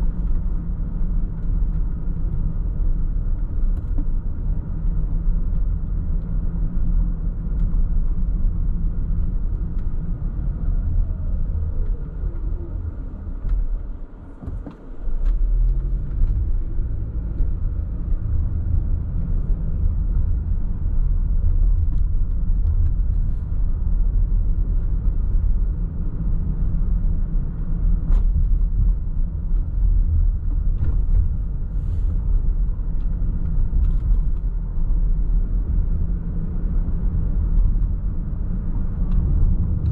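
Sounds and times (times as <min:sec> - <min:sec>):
car engine rumble: 0:00.0 - 0:39.9
road noise: 0:00.0 - 0:39.9.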